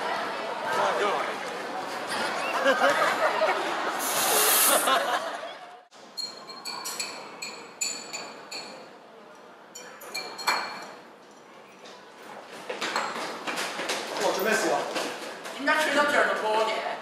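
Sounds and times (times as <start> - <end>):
voices and laughter in a hall: 0.0 - 5.9
short hiss: 4.0 - 5.0
glassware clinking on a bench: 6.1 - 8.9, 9.7 - 11.1.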